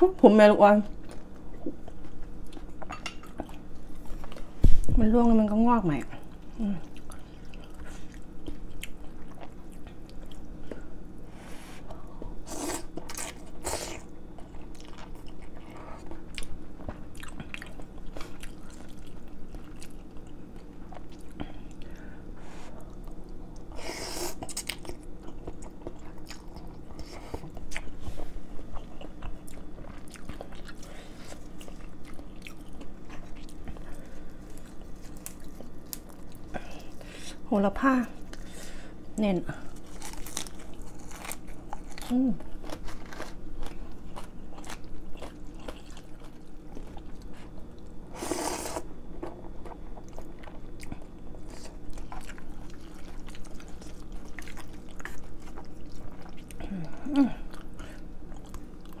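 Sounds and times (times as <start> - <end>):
steady low hum: 0.0 - 59.0
chewing and biting food: 6.1 - 10.9, 12.8 - 22.0, 24.4 - 37.0, 39.6 - 48.1, 48.7 - 59.0.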